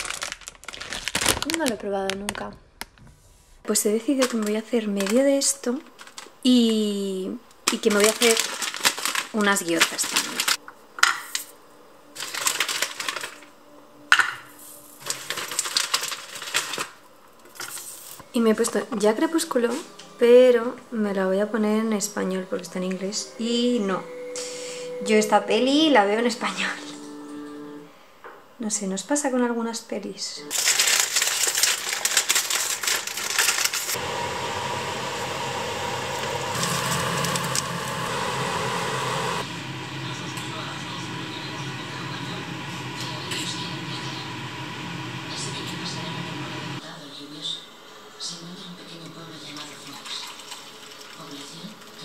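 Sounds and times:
plastic bag rustling and crinkling: 0:00.0 - 0:03.1, 0:03.8 - 0:07.0, 0:07.6 - 0:10.6, 0:12.2 - 0:13.5, 0:14.8 - 0:18.2, 0:30.5 - 0:34.8, 0:35.6 - 0:39.1
fan whirring: 0:30.6 - 0:46.8.

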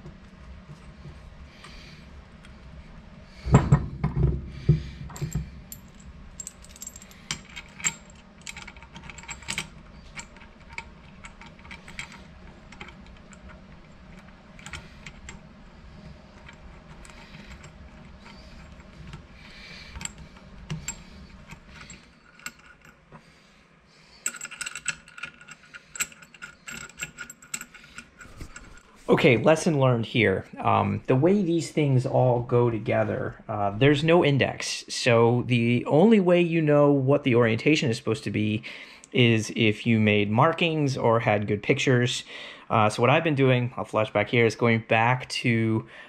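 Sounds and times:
metal parts clinking and knocking: 0:05.0 - 0:15.4, 0:16.4 - 0:23.0, 0:24.1 - 0:28.9.

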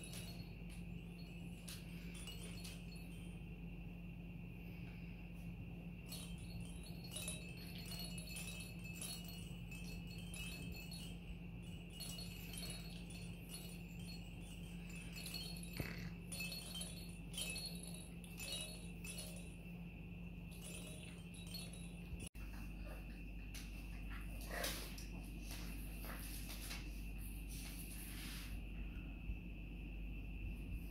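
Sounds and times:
plastic toys clinking and jingling: 0:00.0 - 0:03.3, 0:06.1 - 0:19.6, 0:20.4 - 0:22.3.

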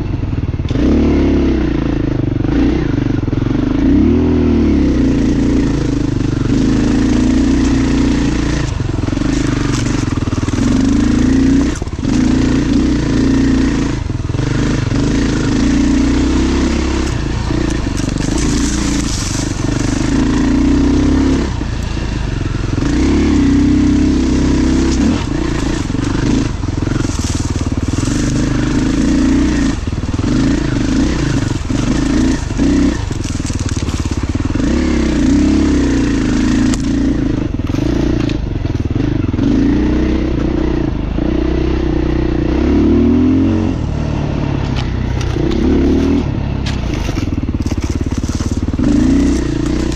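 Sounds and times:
dirt bike engine revving: 0:00.6 - 0:49.9
bike knocking and clattering: 0:16.8 - 0:20.8, 0:24.8 - 0:34.8, 0:44.6 - 0:49.9.

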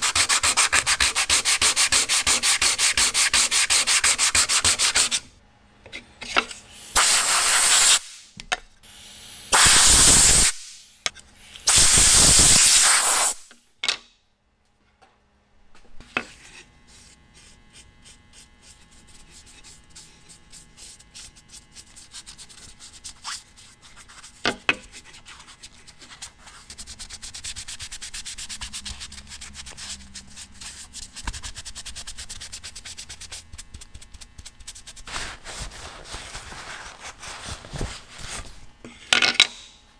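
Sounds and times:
brush scratching on wood: 0:00.0 - 0:05.2, 0:16.2 - 0:38.5
sandpaper rubbing wood: 0:00.0 - 0:05.2, 0:06.9 - 0:08.1, 0:16.3 - 0:38.6.

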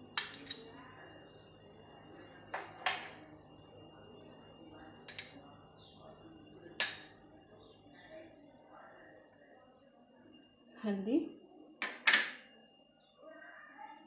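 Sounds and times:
steel kitchenware clinking: 0:00.2 - 0:00.7, 0:02.5 - 0:04.4, 0:05.0 - 0:05.5, 0:11.2 - 0:12.4.

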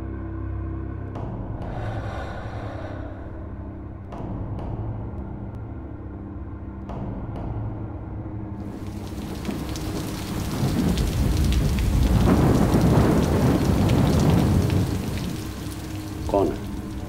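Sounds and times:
steady rain: 0:08.6 - 0:17.0
thunder rumbling: 0:08.7 - 0:17.0.

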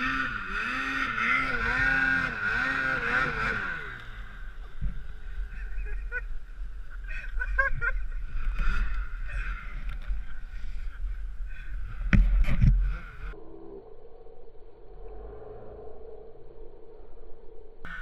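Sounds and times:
snowmobile engine idling: 0:00.0 - 0:13.4
wind rumble on microphone: 0:04.6 - 0:18.0
microphone handling noise: 0:12.0 - 0:13.2.

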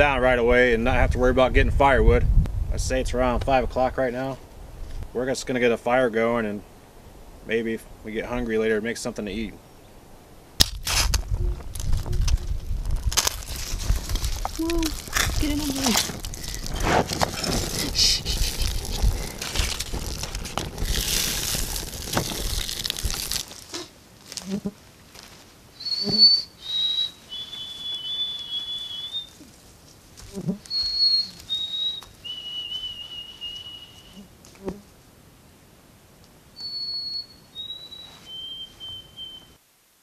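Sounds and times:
man whistling birdsong: 0:25.8 - 0:29.4, 0:30.7 - 0:34.2, 0:36.6 - 0:39.6
sparrow singing: 0:25.8 - 0:29.4, 0:30.7 - 0:34.2, 0:36.6 - 0:39.6.

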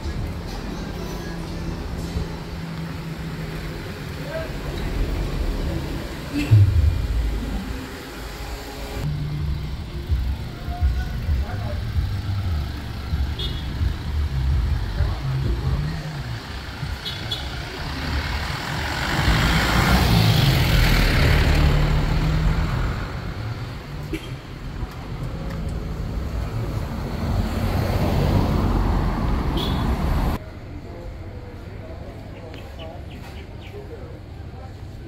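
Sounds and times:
vehicle engines rumbling: 0:00.0 - 0:35.0
vehicle passing: 0:13.9 - 0:23.9, 0:25.8 - 0:30.4.

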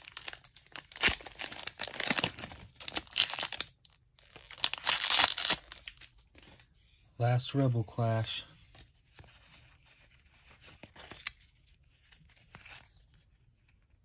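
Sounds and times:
foil wrapper tearing and crinkling: 0:00.0 - 0:06.1.

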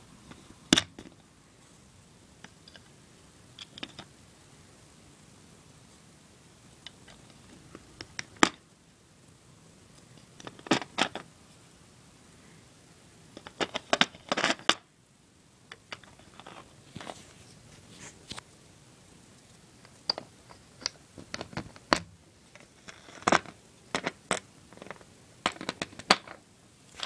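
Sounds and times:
plastic bricks clicking: 0:20.0 - 0:26.4.

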